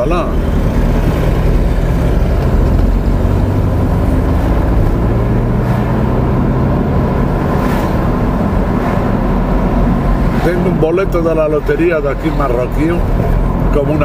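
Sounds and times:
car engine and road noise: 0.0s - 14.0s.

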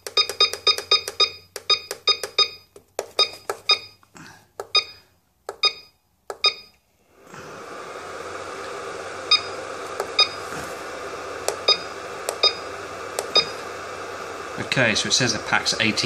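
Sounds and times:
short electronic beeps: 0.2s - 4.0s, 4.7s - 5.0s, 5.6s - 6.7s, 10.2s - 10.4s, 11.6s - 12.6s, 13.3s - 13.6s
steady hiss: 9.9s - 16.0s.

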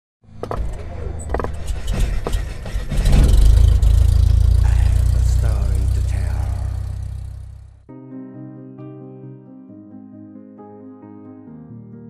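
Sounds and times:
deep drone: 0.8s - 7.9s
low rumble: 1.1s - 7.9s
sharp hits: 1.4s - 7.8s.

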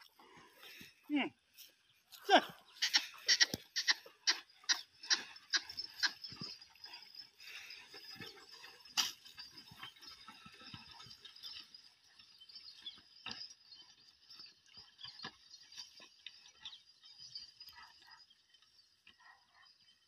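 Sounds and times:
harness clinks: 2.2s - 12.7s
plough scraping soil: 2.7s - 17.4s.

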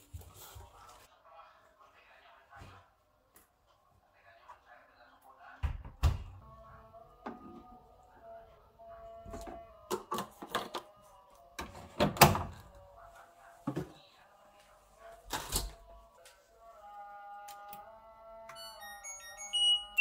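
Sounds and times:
soft background music: 6.4s - 20.0s.

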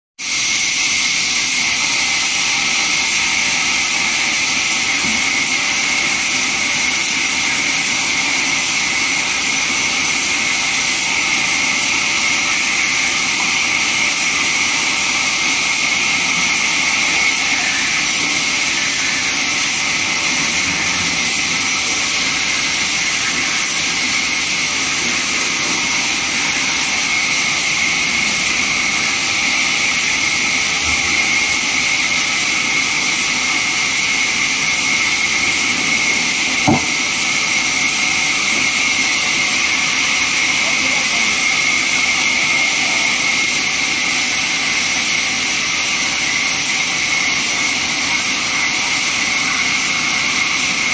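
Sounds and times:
band saw cutting log: 0.3s - 50.9s.

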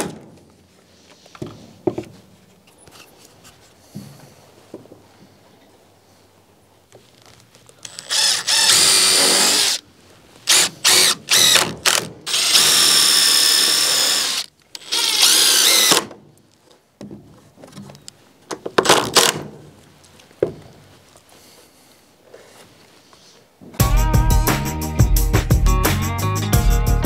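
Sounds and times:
impact driver driving screws: 7.9s - 9.8s, 10.5s - 16.1s.

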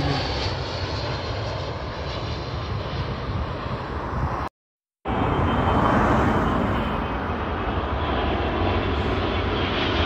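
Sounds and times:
jet engines rumbling: 0.0s - 10.0s
faint high jet whine: 5.1s - 10.0s.

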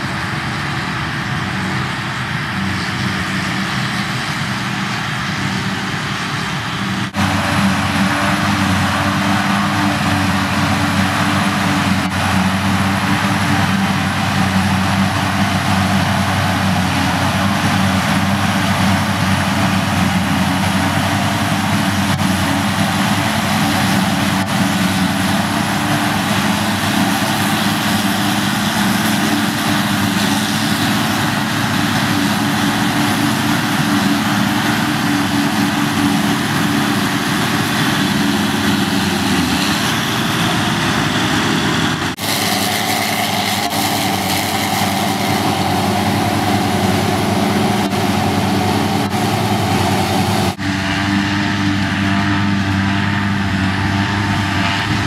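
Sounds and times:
diesel engines running: 0.0s - 55.0s.

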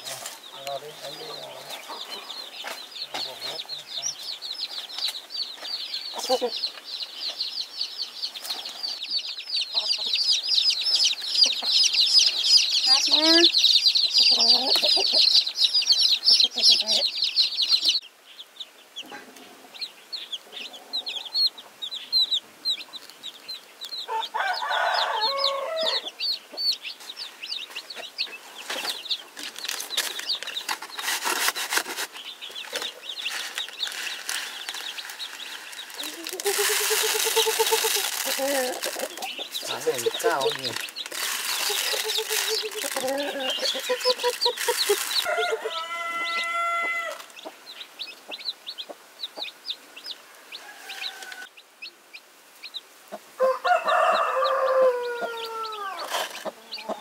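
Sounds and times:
chicks peeping: 0.0s - 57.0s
lower louder chicken calls: 24.1s - 26.2s, 34.0s - 47.5s, 50.2s - 51.6s, 53.1s - 57.0s.

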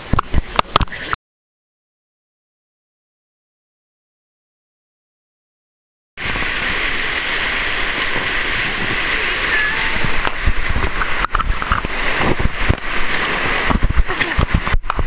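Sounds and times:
river rapid white water rushing: 6.2s - 15.0s
thumps on microphone: 13.6s - 15.0s.

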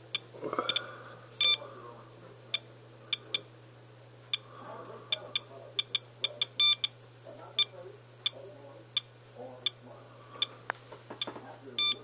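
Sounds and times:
dosimeter beeping: 0.0s - 1.6s, 5.1s - 7.0s, 7.6s - 9.8s, 11.2s - 12.0s.

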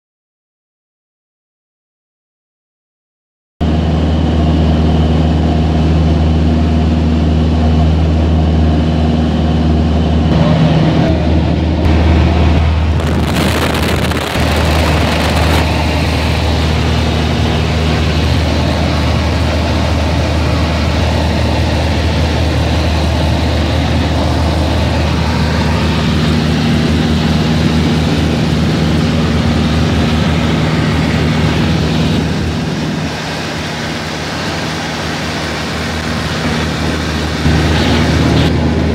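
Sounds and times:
propeller aircraft engine droning: 3.6s - 38.9s
rush of air: 10.3s - 16.7s
loud hissing rush: 10.3s - 38.9s.

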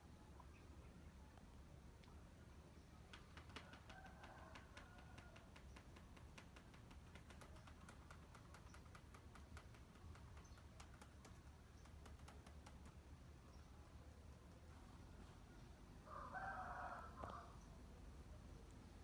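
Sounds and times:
soft irregular clicks: 3.0s - 13.2s.

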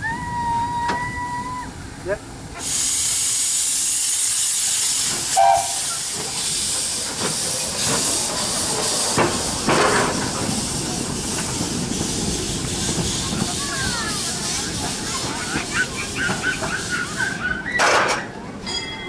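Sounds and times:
steam hissing: 2.4s - 17.8s
steam puffs: 2.6s - 17.7s.

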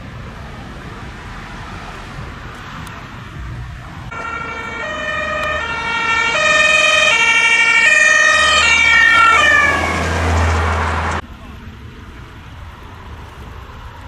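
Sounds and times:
ambulance engine: 0.0s - 14.0s
two-tone ambulance siren: 4.1s - 11.2s.

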